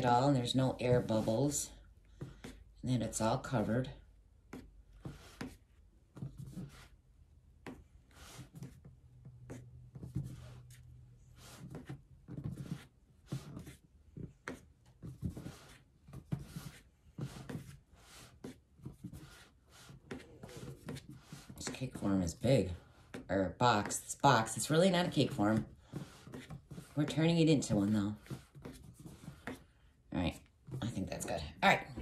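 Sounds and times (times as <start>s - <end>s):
paste spreading tool scraping: 0.0s - 2.6s, 14.6s - 29.8s.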